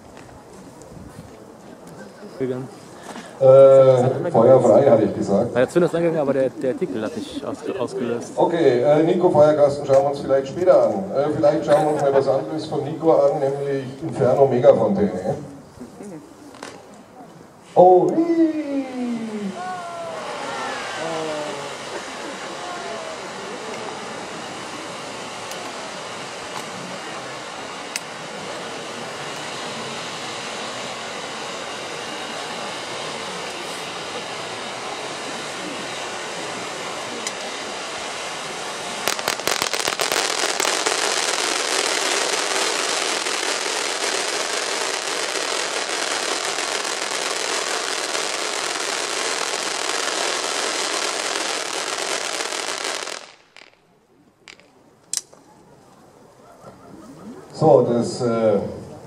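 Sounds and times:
firework fountain hissing: 0.0s - 55.4s
firework crackle: 15.6s - 55.4s.

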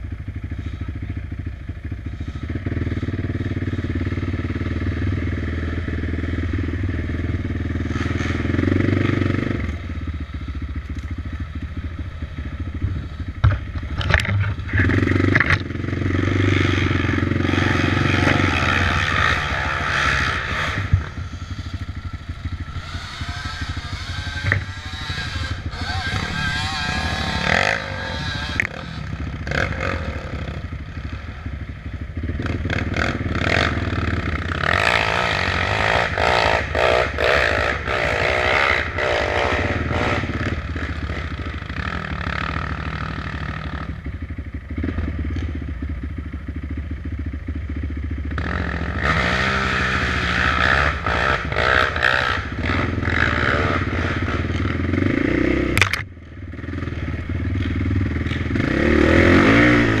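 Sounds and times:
off-road vehicle engine: 0.0s - 60.0s
knocks and clatter: 12.8s - 15.7s.

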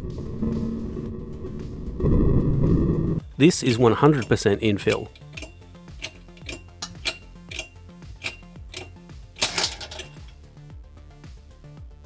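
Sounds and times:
background music with bass: 0.0s - 12.0s
sharp metallic clicks: 4.1s - 10.4s.

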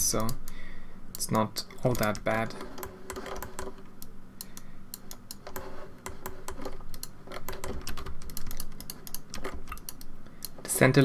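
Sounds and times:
mouse buttons clicking: 1.2s - 10.6s
keyboard keys clicking: 5.0s - 10.6s.

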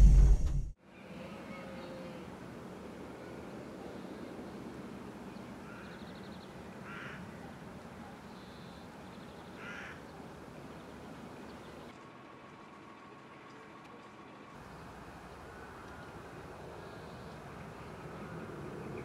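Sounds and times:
outdoor background hiss: 0.7s - 19.0s
small birds chirping: 3.9s - 12.0s, 14.6s - 19.0s
crow cawing: 5.6s - 6.1s, 6.8s - 7.4s, 9.6s - 10.1s.

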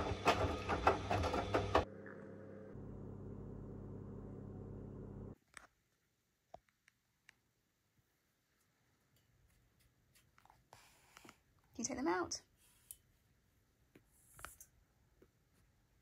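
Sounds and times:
washing machine drum churning: 0.0s - 1.9s.

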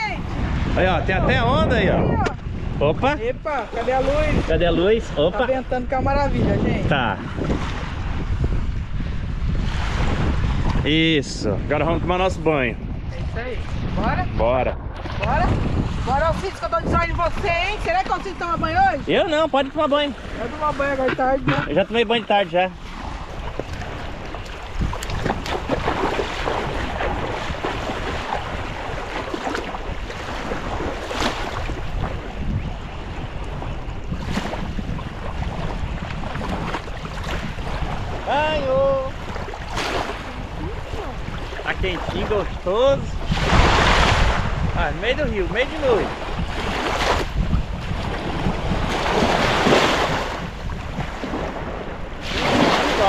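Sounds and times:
wind buffeting microphone: 0.0s - 53.0s
small waves lapping: 14.9s - 53.0s
people wading splashing: 19.3s - 32.3s, 34.2s - 43.6s.

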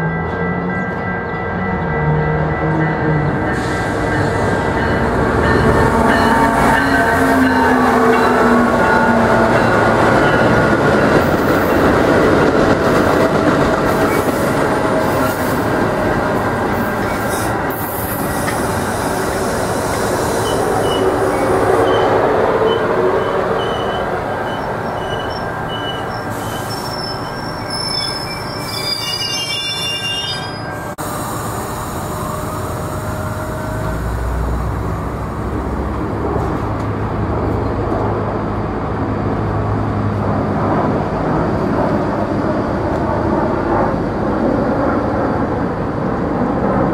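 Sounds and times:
train wheels rumbling on rail: 0.0s - 46.9s
high-pitched wheel squeals: 17.0s - 31.0s.

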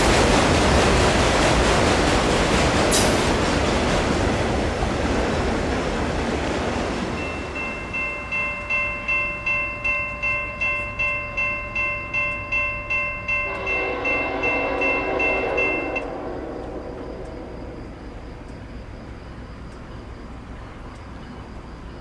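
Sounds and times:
freight train cars rumbling: 0.0s - 22.0s
railroad crossing bell ringing: 7.1s - 17.9s
locomotive horn: 13.3s - 17.8s.

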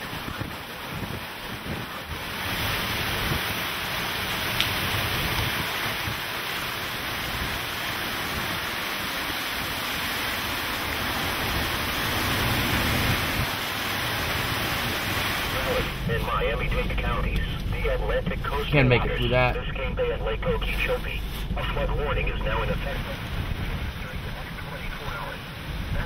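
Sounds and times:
heavy wind-driven rain: 0.0s - 26.0s
strong wind: 0.0s - 26.0s.

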